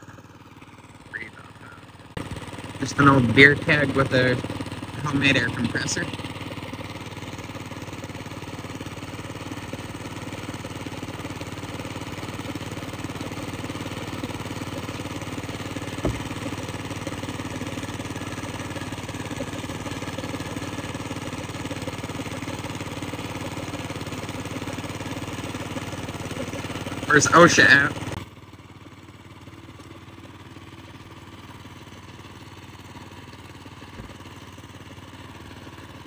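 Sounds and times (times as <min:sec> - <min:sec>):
small gasoline engine running: 0:00.0 - 0:36.0
brief knock: 0:16.0 - 0:16.4.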